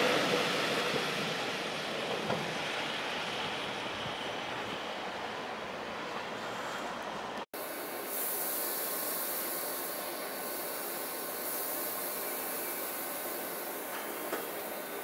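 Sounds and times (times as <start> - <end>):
electric train hissing: 7.6 - 15.0.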